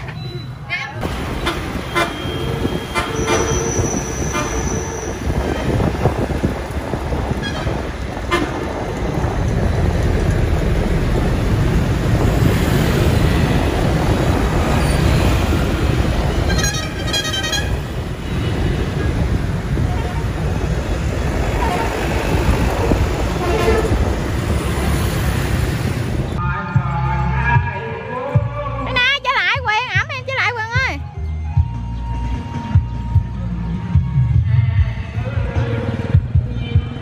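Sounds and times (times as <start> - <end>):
horn beeps: 0.0 - 0.7, 1.3 - 5.8
road noise: 0.0 - 37.0
vehicle horn: 1.4 - 5.8, 7.4 - 8.6, 16.3 - 17.9, 23.4 - 24.1.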